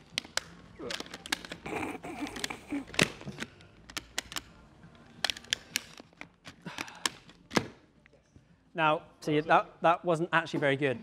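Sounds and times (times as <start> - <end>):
plastic helmet visor clicks and snaps: 0.0 - 1.6, 2.2 - 4.6, 5.2 - 7.8.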